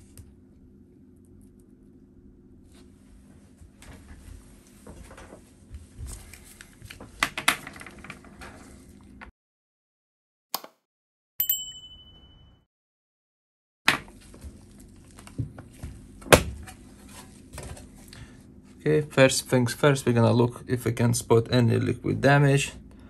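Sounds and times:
bell ding sound effect: 0:11.4 - 0:12.7.

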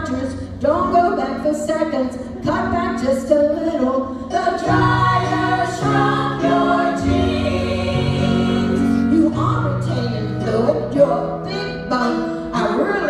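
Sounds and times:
women singing together: 0:04.2 - 0:10.0.

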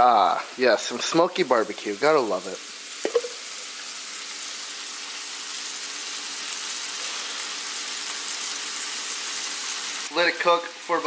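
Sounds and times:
fish fillets sizzling in frying pan: 0:00.5 - 0:11.0.

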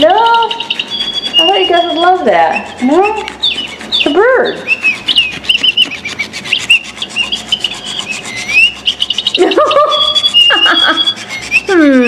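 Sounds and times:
electronic bird chirps: 0:00.0 - 0:12.0
toy wings flapping: 0:00.0 - 0:12.0.

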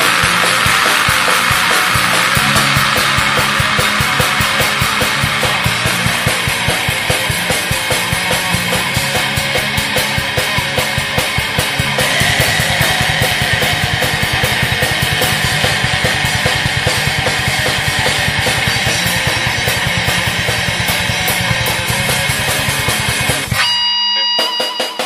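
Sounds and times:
high held note ringing: 0:00.0 - 0:09.4, 0:11.4 - 0:25.0
blast beat drums: 0:00.0 - 0:23.6
distorted guitar: 0:00.0 - 0:25.0.

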